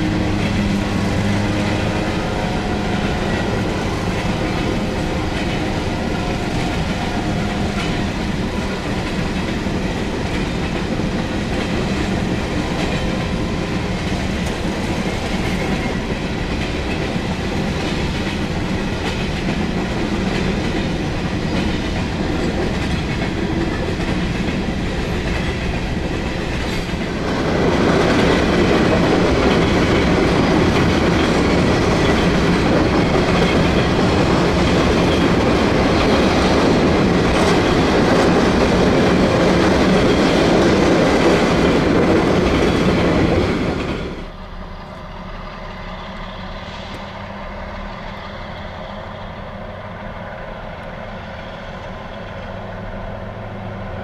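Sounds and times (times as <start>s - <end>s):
freight train rolling past: 0.0s - 54.0s.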